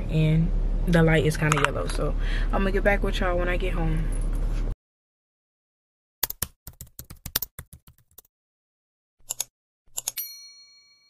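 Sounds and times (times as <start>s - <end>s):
rapid typing clicks: 6.2s - 8.2s, 9.2s - 10.2s
bell ding: 10.2s - 11.0s.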